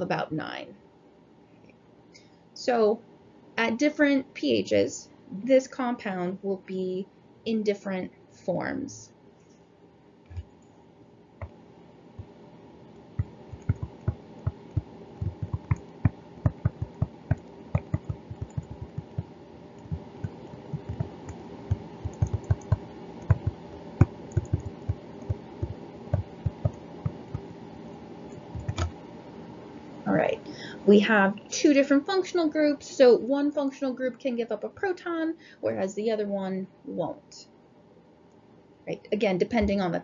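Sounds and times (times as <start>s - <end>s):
low background hum: 0.0s - 40.0s
stylus tapping on screen: 13.2s - 27.5s.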